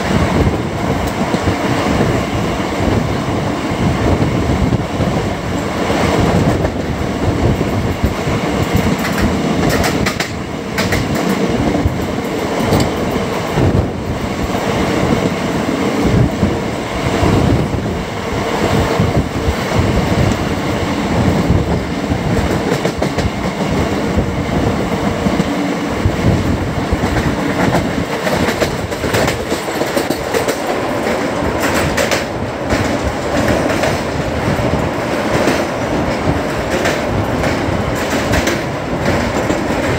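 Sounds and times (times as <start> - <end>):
train coaches rumbling: 0.0 - 39.9
wheels clicking over rail joints: 6.3 - 13.7, 26.4 - 39.9.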